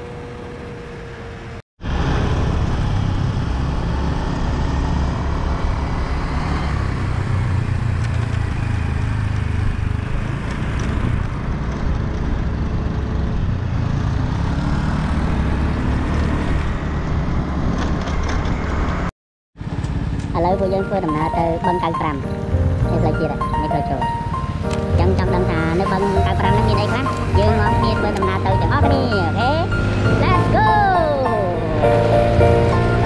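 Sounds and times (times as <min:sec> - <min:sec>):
motorcycle engine running: 0:19.6 - 0:23.4.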